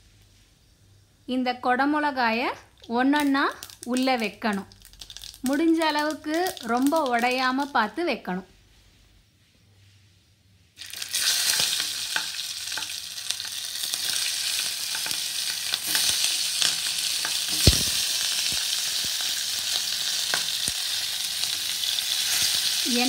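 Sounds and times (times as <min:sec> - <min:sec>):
oil sizzling with small pops: 0:02.4 - 0:08.0, 0:10.8 - 0:23.0.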